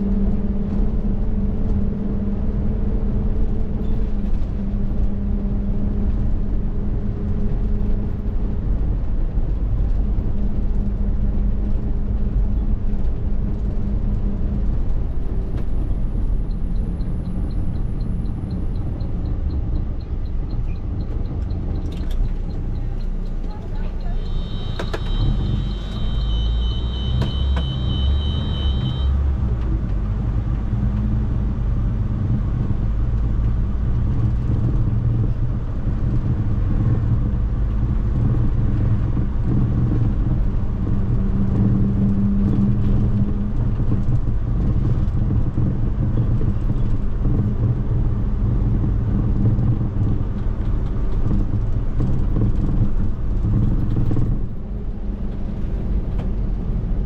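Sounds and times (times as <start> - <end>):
bus engine rumbling: 0.0 - 57.0
two-tone electronic beeping: 16.0 - 29.2.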